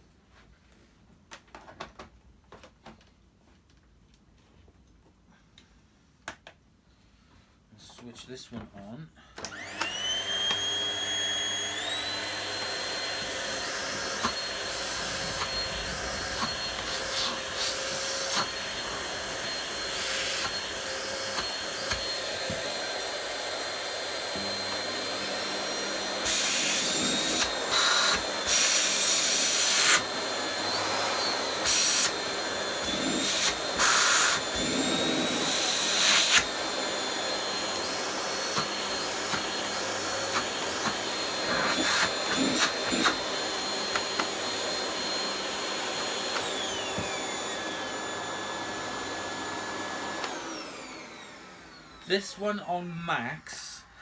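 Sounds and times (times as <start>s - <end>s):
vacuum cleaner motor whine: 9.4s - 52.6s
rushing airflow: 14.5s - 18.9s.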